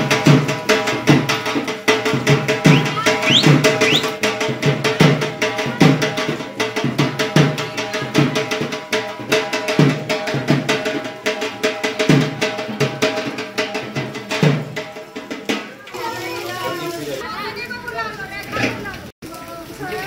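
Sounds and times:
drum music with steady beat: 0.0 - 15.8.

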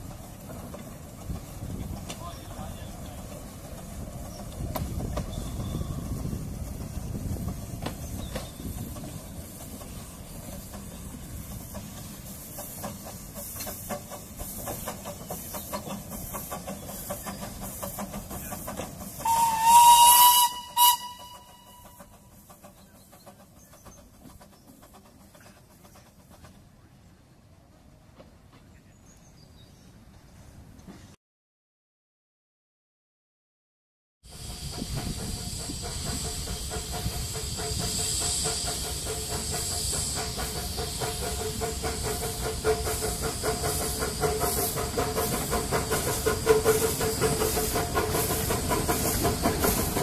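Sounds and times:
steam locomotive exhaust beats: 0.0 - 28.9, 34.2 - 50.0
steam whistle: 19.2 - 22.1.

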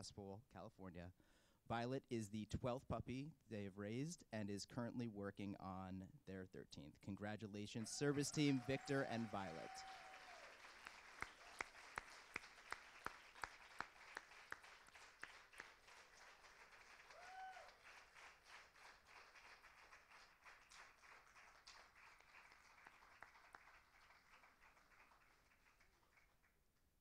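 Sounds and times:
faint applause: 7.8 - 26.6
person clapping: 8.8 - 26.4.

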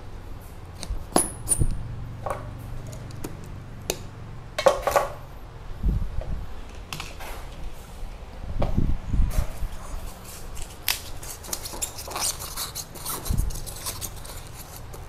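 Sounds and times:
rustling and crackling packing: 9.4 - 15.0.

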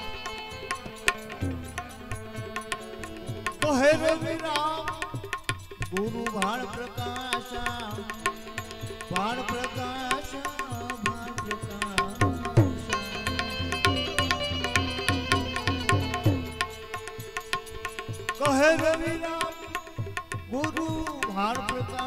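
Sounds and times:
tabla strokes: 0.0 - 22.0
steady held notes: 11.0 - 18.2
wavering melody line: 11.8 - 16.8.

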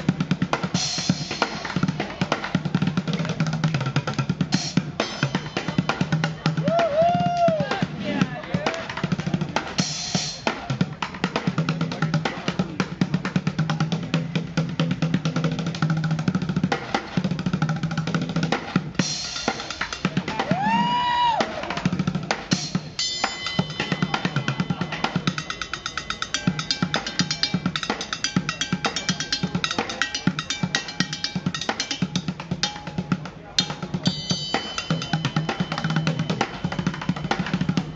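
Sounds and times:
cymbal and pot ringing: 23.0 - 32.0, 34.0 - 37.5.

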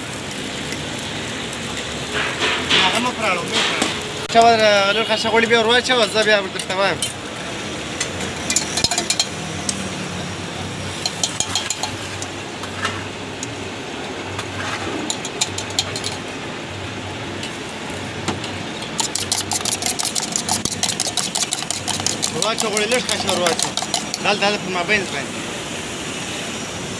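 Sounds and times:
spoon clinking against metal mug: 8.4 - 9.8, 11.0 - 12.3, 15.0 - 16.3, 18.8 - 24.4.

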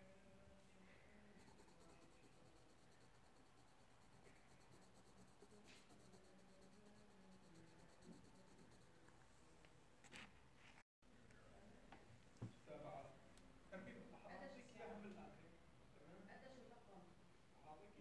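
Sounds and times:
pen scratching on paper: 1.4 - 9.1.

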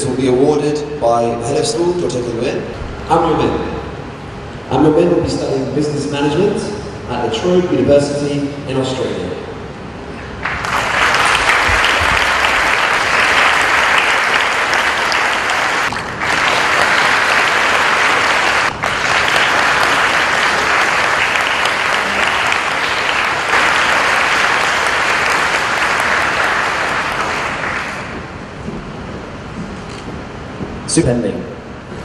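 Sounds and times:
audience applauding: 10.2 - 28.6.

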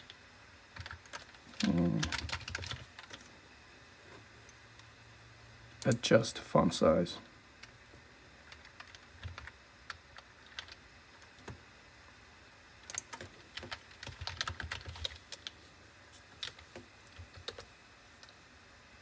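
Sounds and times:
computer keyboard typing: 0.8 - 3.3, 8.4 - 11.6, 12.8 - 15.6, 16.3 - 17.7.

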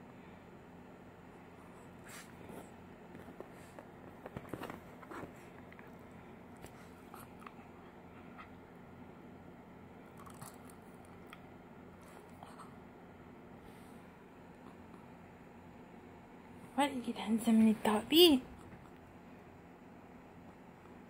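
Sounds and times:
faint rustling of dog fur: 1.5 - 8.6.

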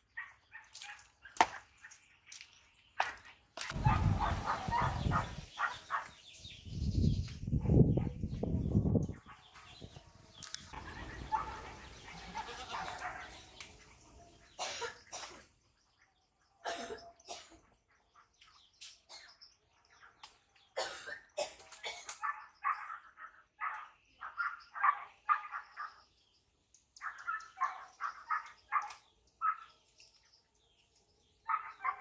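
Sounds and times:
rustling leaves: 3.6 - 6.7.

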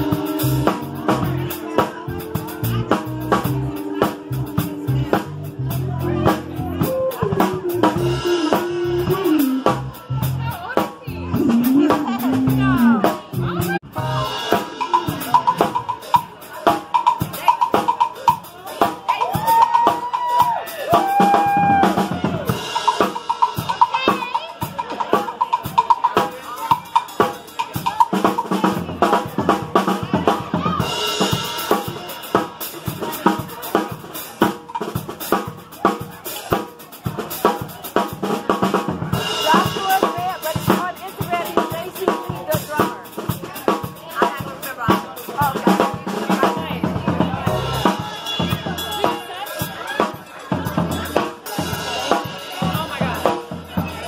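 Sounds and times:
acoustic drum kit playing: 0.0 - 54.0.

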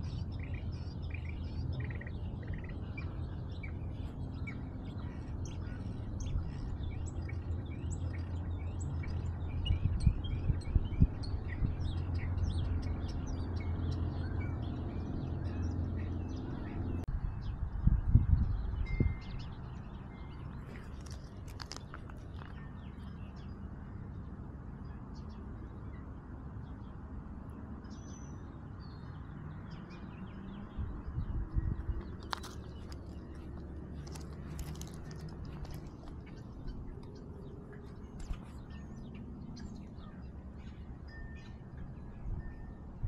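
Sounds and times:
birds chirping faintly: 0.0 - 42.9.

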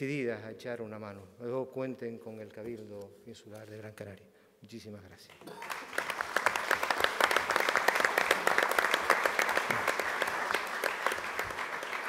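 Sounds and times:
audience applauding: 5.4 - 12.0.

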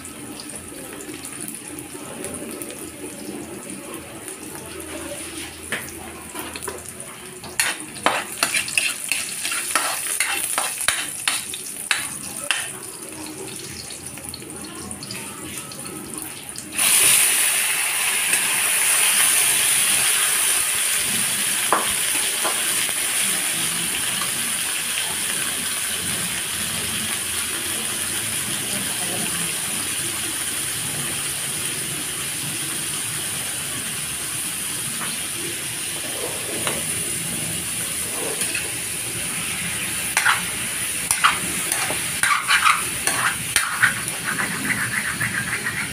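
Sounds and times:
meat sizzling in hot oil: 4.6 - 45.9
metal spatula scraping wok: 7.4 - 12.0, 38.0 - 38.9, 40.0 - 45.9.

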